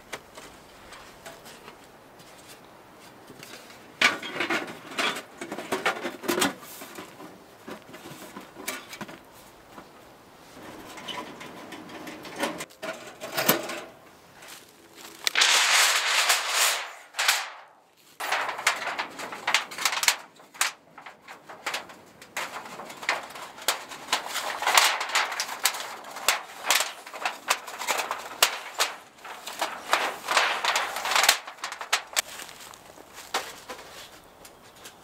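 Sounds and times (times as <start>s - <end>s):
thin metal sheet rattling: 15.1s - 32.5s
flexing metal rushes: 15.3s - 20.0s.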